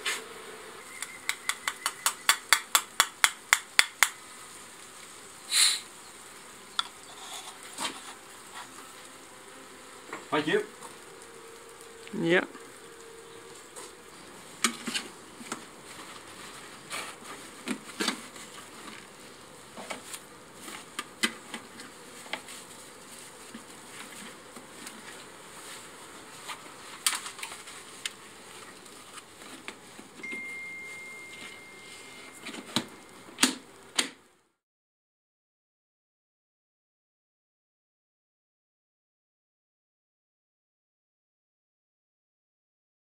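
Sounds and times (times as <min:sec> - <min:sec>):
honeybees humming: 0:00.0 - 0:34.0.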